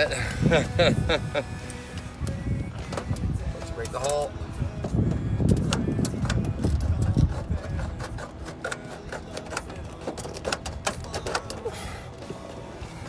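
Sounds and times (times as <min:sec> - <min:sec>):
tin snips cutting metal: 0:05.4 - 0:11.7.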